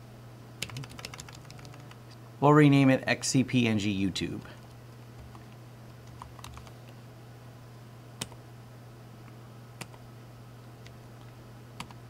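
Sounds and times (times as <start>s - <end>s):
steady low hum: 0.0s - 12.0s
computer keyboard keystrokes: 0.6s - 2.0s, 4.6s - 6.7s.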